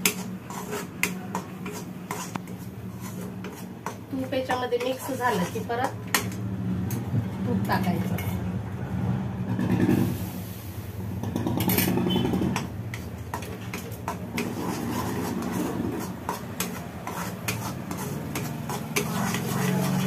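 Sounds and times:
metal spatula scraping a pan: 0.0s - 6.4s, 7.6s - 8.4s, 11.2s - 20.0s.

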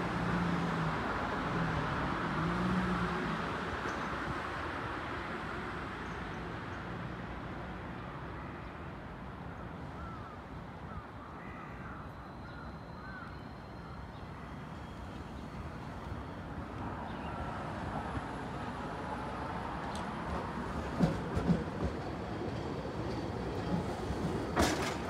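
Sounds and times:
crow cawing: 10.0s - 13.3s
traffic hum: 13.5s - 25.0s.

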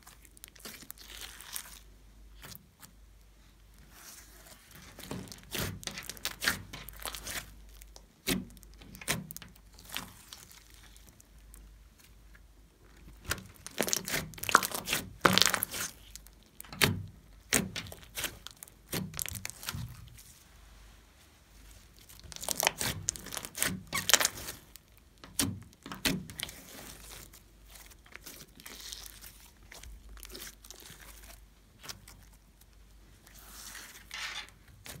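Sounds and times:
slime crackling and popping: 0.0s - 2.9s, 4.6s - 12.2s, 12.9s - 20.2s, 21.9s - 34.0s.

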